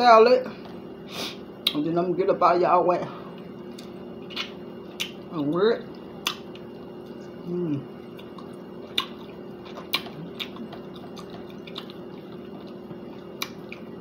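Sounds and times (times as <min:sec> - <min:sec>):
person humming: 0:07.4 - 0:07.9
wet chewing mouth clicks: 0:08.0 - 0:14.0.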